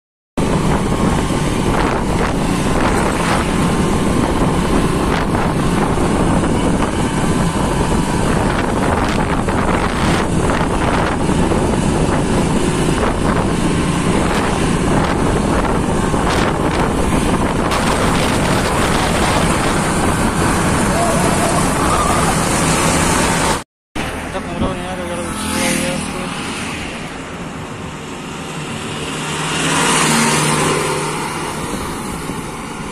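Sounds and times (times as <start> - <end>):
wind noise on microphone: 0.4 - 23.6.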